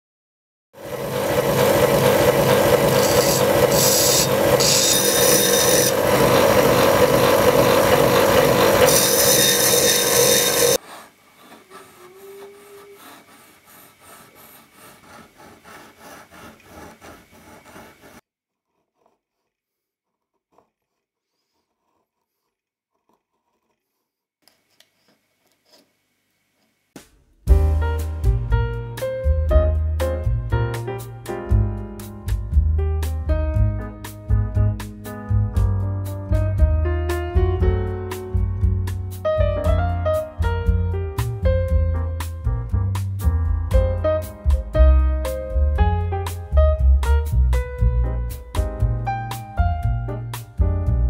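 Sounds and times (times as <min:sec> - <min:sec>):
scraping strokes on stone: 0:02.6 - 0:26.0
chisel rasping on sharpening stone: 0:02.9 - 0:06.5, 0:08.2 - 0:10.8, 0:14.6 - 0:24.9.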